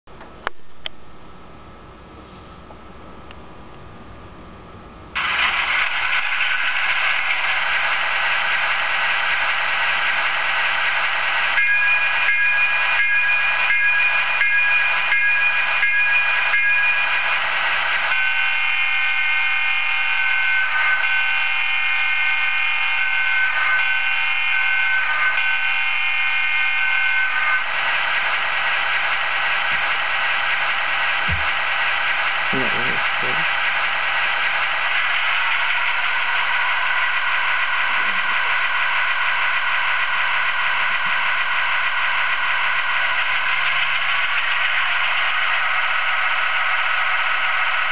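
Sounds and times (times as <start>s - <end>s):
electronic locomotive bell dinging: 11.3s - 32.4s.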